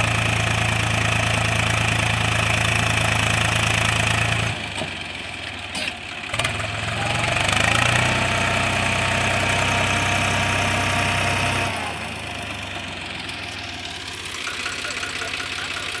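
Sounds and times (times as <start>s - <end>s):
tractor diesel engine revving: 0.0s - 16.0s.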